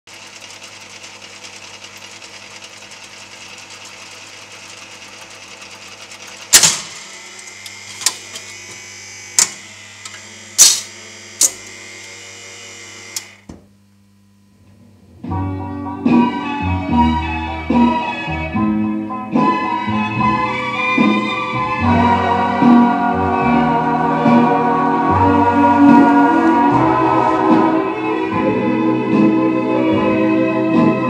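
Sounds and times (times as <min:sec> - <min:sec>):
jukebox motor humming: 0:00.1 - 0:13.8, 0:19.4 - 0:29.3.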